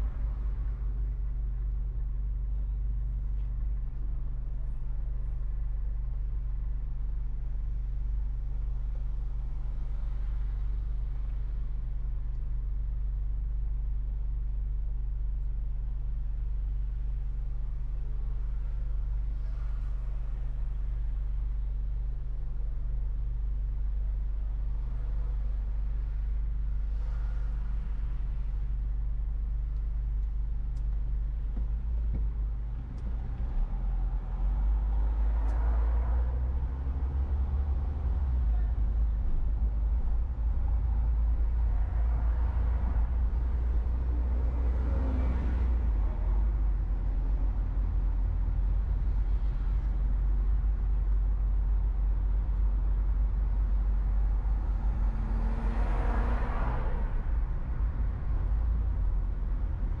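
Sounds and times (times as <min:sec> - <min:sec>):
car driving rumble: 0:00.0 - 1:00.0
traffic passing: 0:30.2 - 1:00.0.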